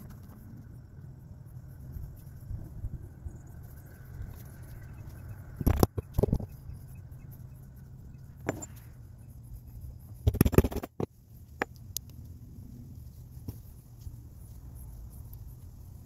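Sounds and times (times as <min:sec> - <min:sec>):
steady low hum: 0:00.0 - 0:16.0
objects knocking and clicking: 0:05.6 - 0:06.6, 0:08.4 - 0:08.9, 0:10.1 - 0:11.8.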